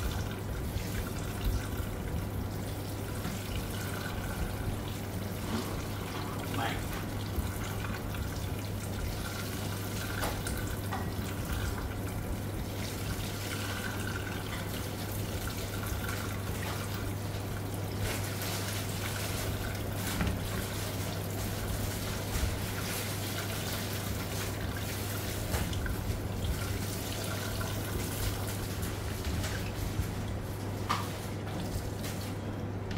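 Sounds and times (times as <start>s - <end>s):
tap water splashing in colander: 0.0s - 32.4s
hands squeezing and rinsing: 12.7s - 32.4s.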